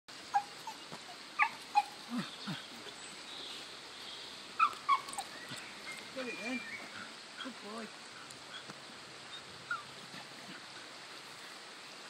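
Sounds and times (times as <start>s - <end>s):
dog whimpering: 1.4s - 2.3s.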